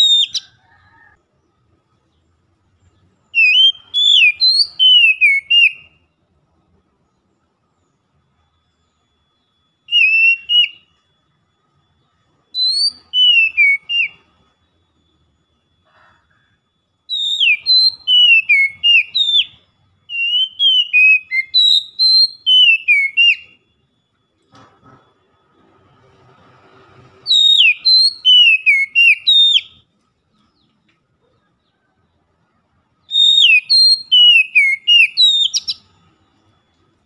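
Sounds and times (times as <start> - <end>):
bird singing whistled phrases: 0.0 - 0.5, 3.3 - 6.0, 9.8 - 11.0, 12.5 - 14.3, 17.1 - 23.6, 27.2 - 29.8, 33.0 - 35.9.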